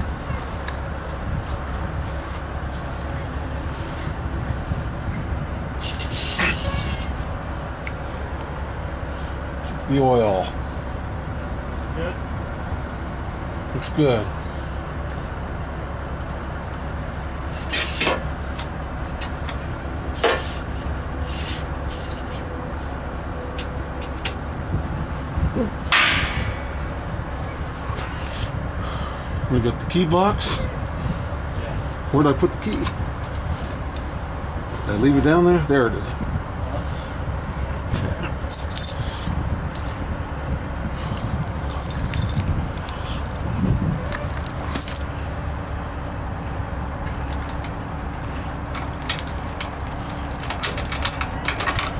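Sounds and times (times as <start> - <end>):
low mechanical hum: 0.0 - 51.9
steady low rumble: 0.0 - 51.9
keys jingling: 38.1 - 39.1, 41.1 - 42.5, 48.4 - 51.9
sharp metallic clicks and clanks: 48.7 - 51.9.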